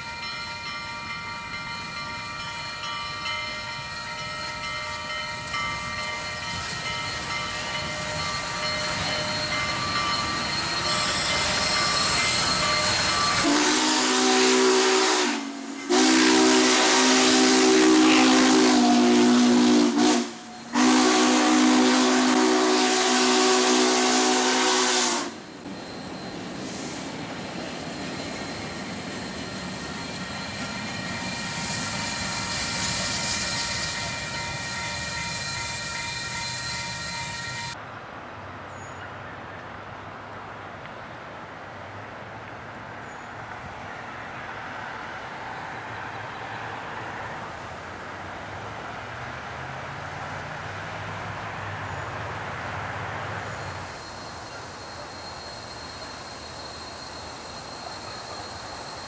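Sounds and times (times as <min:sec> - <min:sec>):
steam locomotive chime whistle: 0:00.0 - 0:27.1, 0:27.8 - 0:37.8, 0:53.4 - 0:59.0
passing train rumble and hiss: 0:00.0 - 0:59.0.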